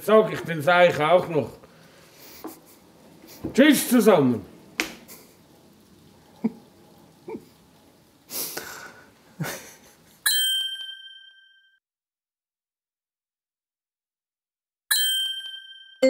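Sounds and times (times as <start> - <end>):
bell-like ding: 10.3 - 11.8, 14.9 - 16.0.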